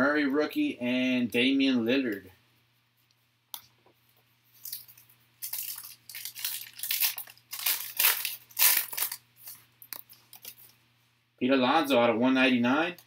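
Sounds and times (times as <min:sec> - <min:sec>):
foil wrapper crinkling as torn open: 0:04.6 - 0:10.7.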